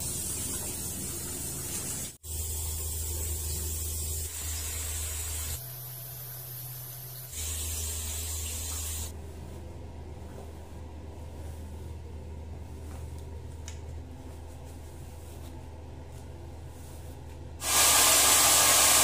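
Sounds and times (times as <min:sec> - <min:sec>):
running water hiss: 0:17.6 - 0:19.0.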